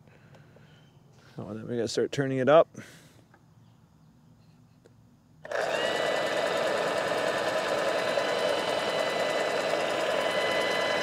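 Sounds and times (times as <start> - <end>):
sprayer motor and pump whine: 5.4 - 11.0.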